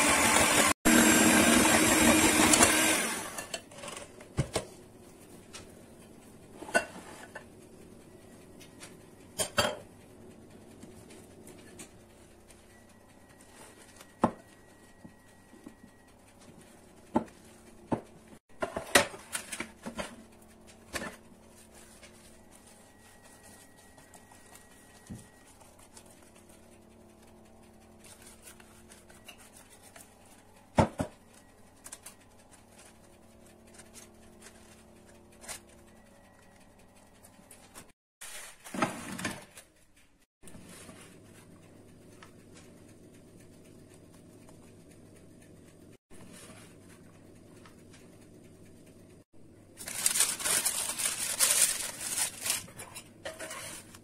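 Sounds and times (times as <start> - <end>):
spatula scraping glass bowl: 52.7 - 54.0.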